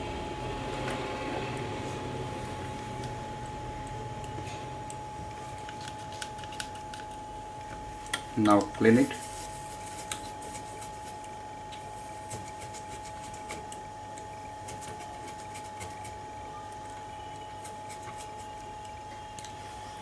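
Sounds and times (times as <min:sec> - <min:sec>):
faint steady whine: 0:00.0 - 0:20.0
cotton scratching on circuit board: 0:08.6 - 0:13.8, 0:14.5 - 0:16.3, 0:17.3 - 0:18.7.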